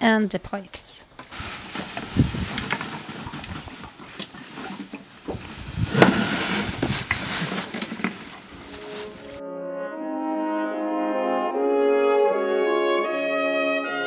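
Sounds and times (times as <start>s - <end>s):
plastic hose and jerrycan handling: 1.2s - 9.4s
wind hiss: 1.3s - 2.8s, 5.3s - 7.7s.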